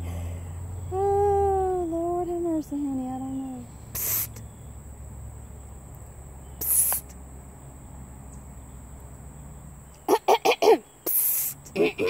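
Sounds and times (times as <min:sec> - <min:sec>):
high-pitched insect drone: 0:00.6 - 0:05.6, 0:06.4 - 0:07.2, 0:11.0 - 0:11.7
short breathy hiss: 0:03.9 - 0:04.4, 0:06.6 - 0:07.2, 0:11.0 - 0:11.7.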